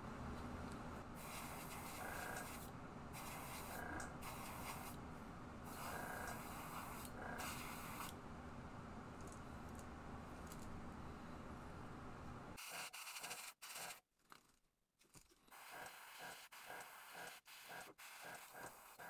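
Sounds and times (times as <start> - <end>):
airbrush hiss: 1.2 - 5.0, 5.7 - 8.1.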